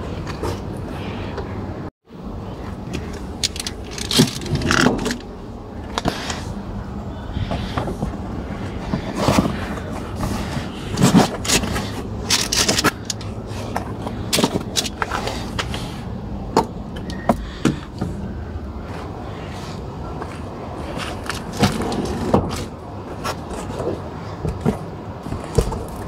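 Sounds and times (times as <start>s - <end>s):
faint steady hum: 0.0s - 26.0s
objects scraping and knocking: 7.4s - 16.0s.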